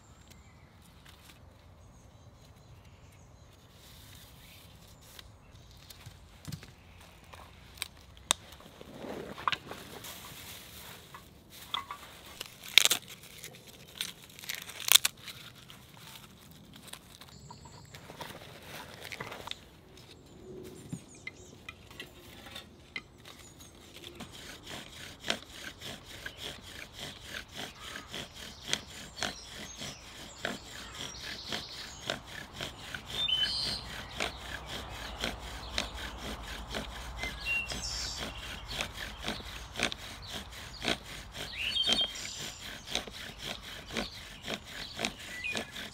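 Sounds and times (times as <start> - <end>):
faint birds chirping: 0.0 - 12.3, 17.2 - 45.9
bow drill rubbing strokes: 23.4 - 45.9.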